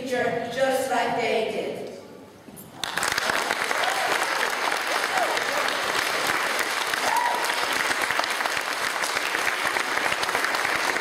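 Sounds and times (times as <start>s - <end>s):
audience applause: 2.8s - 11.0s.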